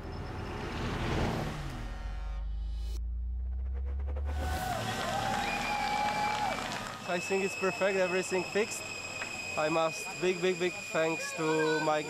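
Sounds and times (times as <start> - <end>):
steady low drone: 1.7 - 11.0
loud rush and falling sweeps: 3.0 - 7.0.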